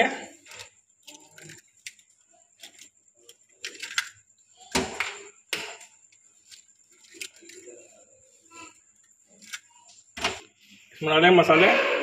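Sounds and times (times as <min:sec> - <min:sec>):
eggshell cracking: 0:00.4 - 0:07.7.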